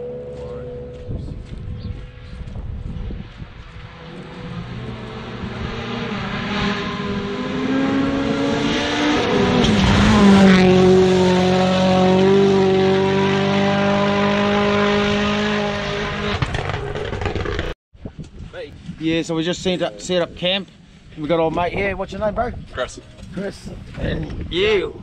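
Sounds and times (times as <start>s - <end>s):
rally car engine passing by: 3.1s - 17.1s.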